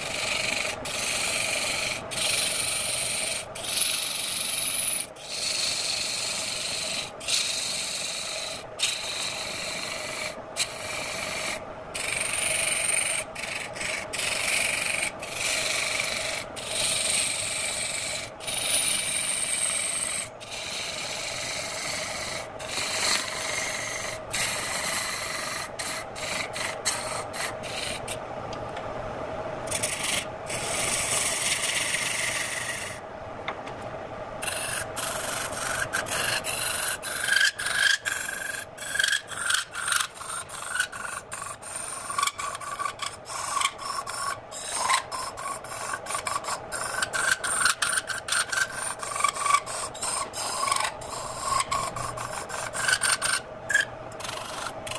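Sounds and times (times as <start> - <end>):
chisel scraping spinning wood: 0.0 - 28.2, 29.7 - 33.0, 34.4 - 54.9
lathe motor hum: 34.4 - 54.9.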